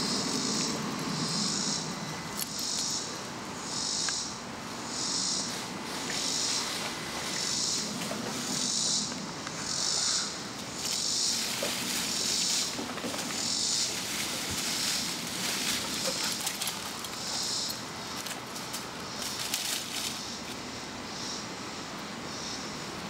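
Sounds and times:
insects pulsed buzzing: 0.0s - 23.0s
paws rustling in dry leaves: 10.0s - 20.6s.

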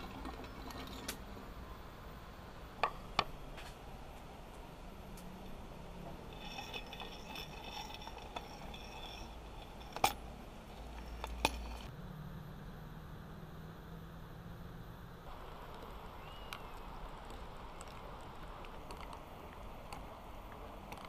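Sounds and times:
kitchenware clinking: 6.1s - 11.9s.

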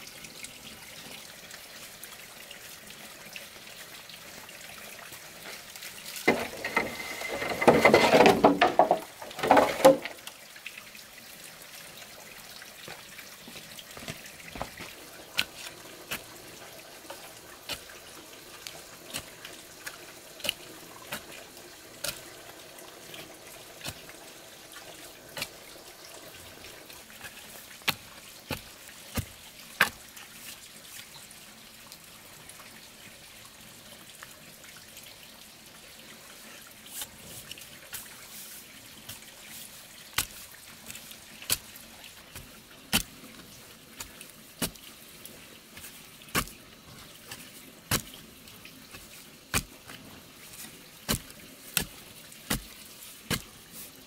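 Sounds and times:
digging tool chopping stony soil: 46.3s - 46.6s, 47.9s - 48.2s, 49.5s - 49.8s, 51.0s - 53.6s.

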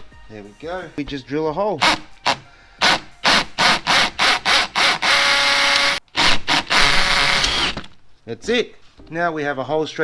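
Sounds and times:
drill boring through plastic: 1.8s - 8.0s.

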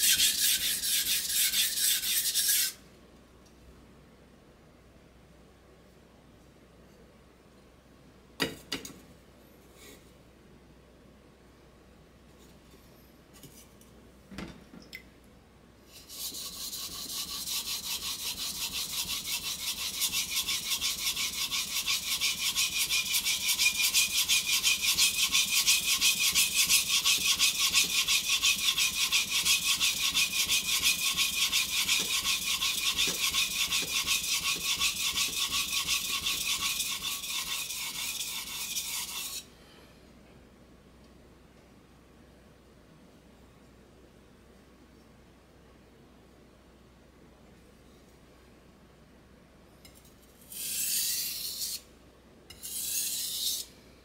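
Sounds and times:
knife scraping on whetstone: 0.0s - 2.8s, 15.9s - 39.5s, 49.9s - 51.8s, 52.5s - 53.7s.

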